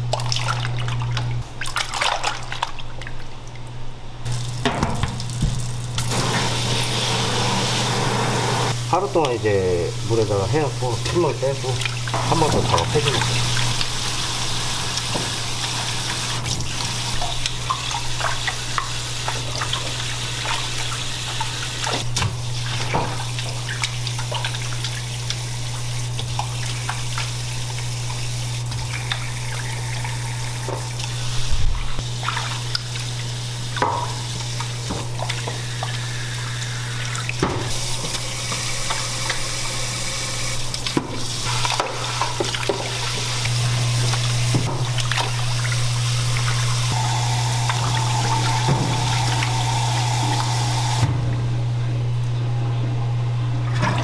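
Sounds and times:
water splashes and clicks: 0:00.0 - 0:03.7, 0:16.4 - 0:25.4, 0:32.2 - 0:36.0, 0:40.7 - 0:46.7
tap water running into sink: 0:04.3 - 0:51.1.

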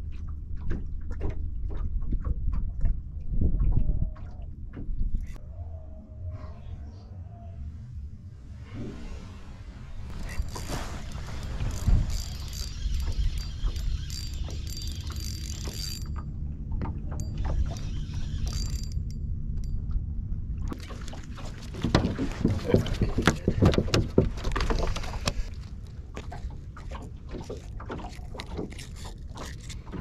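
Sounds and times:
fishing reel whirring: 0:10.1 - 0:16.3, 0:17.2 - 0:19.2.

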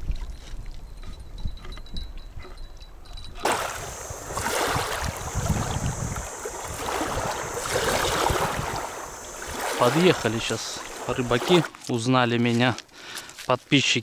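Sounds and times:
river water rushing: 0:03.4 - 0:11.7.

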